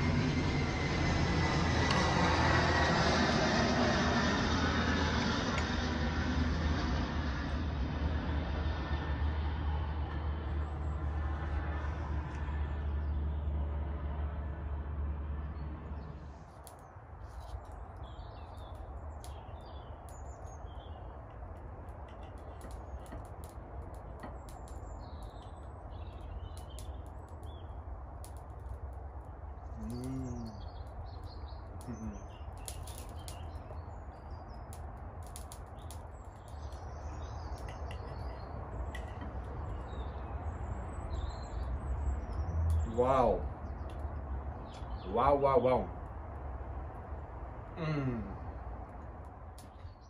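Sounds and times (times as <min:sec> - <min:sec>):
steady low rumble: 0:00.0 - 0:50.0
small birds chirping: 0:15.4 - 0:45.9, 0:47.7 - 0:50.0.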